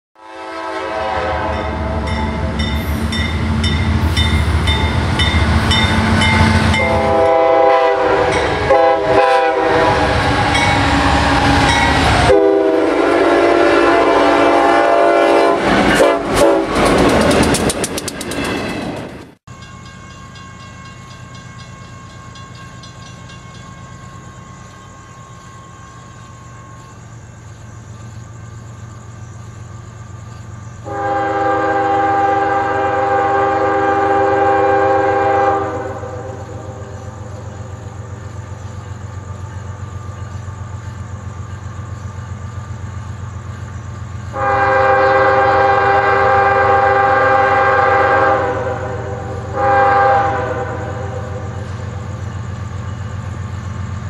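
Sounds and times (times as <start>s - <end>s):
locomotive air horn blasts: 0.2s - 2.6s, 5.9s - 16.8s, 30.8s - 36.9s, 44.3s - 51.6s
low locomotive engine rumble: 0.4s - 54.0s
train wheel clatter: 15.6s - 30.8s.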